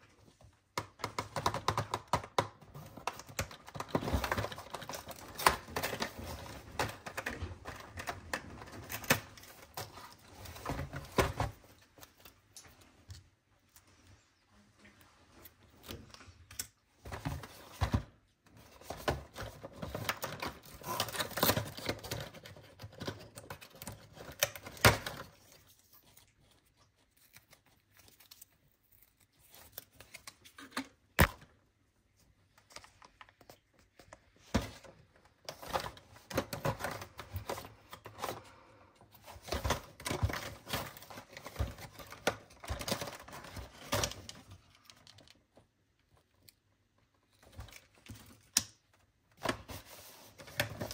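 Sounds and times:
cardboard rustling and tearing: 17.1 - 30.6.

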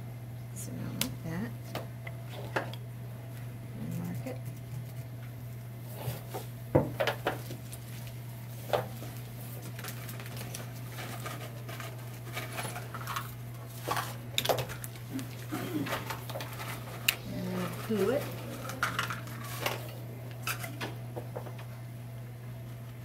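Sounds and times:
low hum: 14.7 - 23.0.

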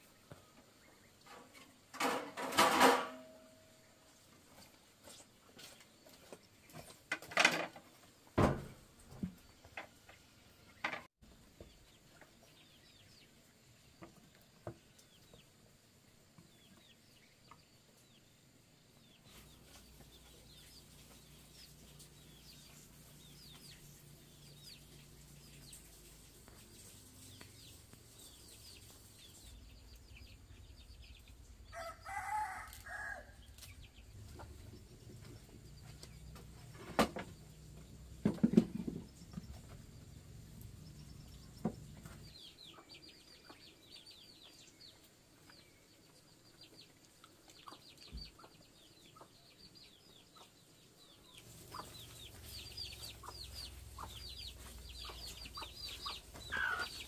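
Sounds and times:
rooster crowing: 31.7 - 33.4.

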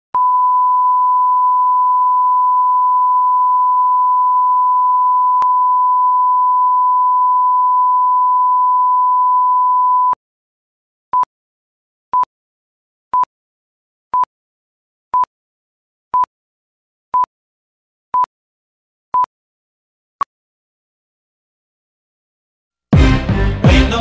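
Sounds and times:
pure reference tone: 0.2 - 10.2.

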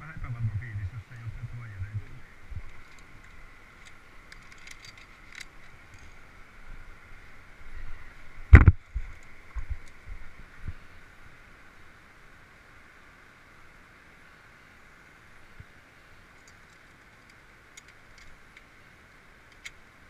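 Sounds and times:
high-pitched hum: 0.0 - 2.7.

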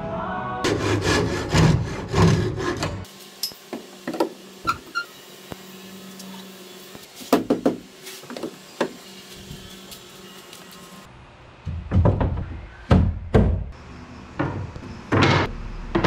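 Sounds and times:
hand tool scraping wood: 0.7 - 3.1.

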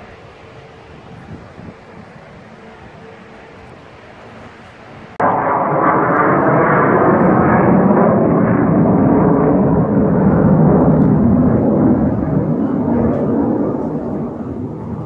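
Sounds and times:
jet passing overhead: 0.0 - 15.0.

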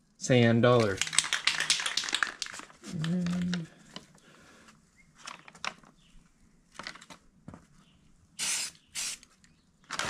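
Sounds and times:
clicks and rustles: 0.7 - 4.2, 5.2 - 6.1, 6.7 - 7.7
spray paint can spraying: 1.0 - 2.6, 8.4 - 9.2.

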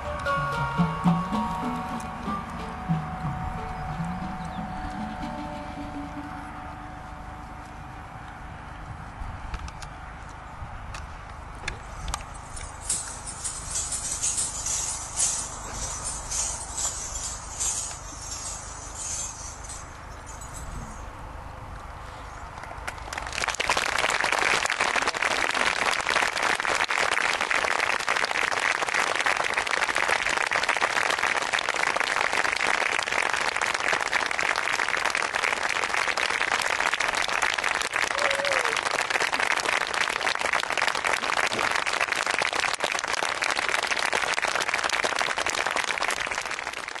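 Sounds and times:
audience applauding: 22.9 - 47.0.

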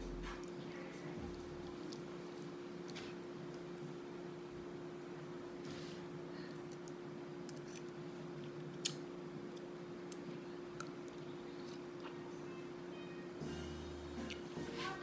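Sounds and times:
steady low hum: 0.0 - 15.0
eating sounds: 0.1 - 3.8.

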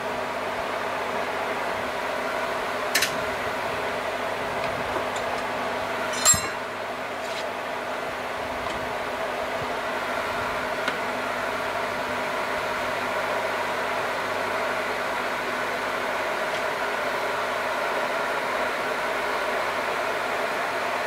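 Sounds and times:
metallic clank: 6.1 - 6.7.

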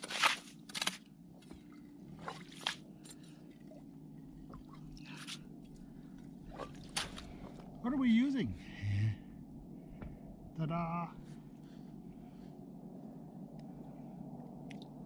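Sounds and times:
slush and ice squishing and crunching: 0.0 - 1.0.

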